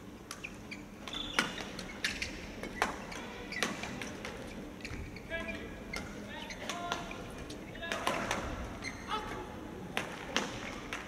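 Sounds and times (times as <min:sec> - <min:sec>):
shoes squeaking on court: 0:00.3 - 0:07.8, 0:08.8 - 0:09.1.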